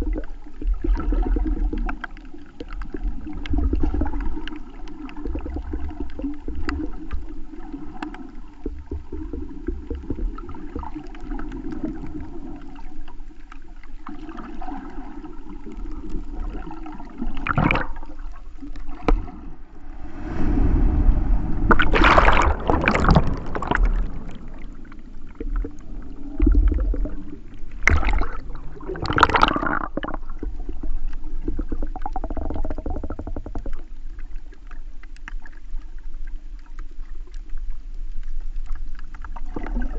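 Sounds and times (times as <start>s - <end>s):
muffled underwater rumble: 0.0s - 39.9s
rushes of water: 0.0s - 39.9s.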